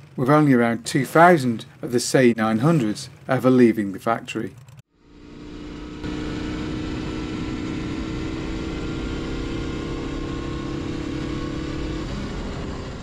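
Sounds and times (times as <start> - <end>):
motorcycle engine cruising: 4.4 - 13.0.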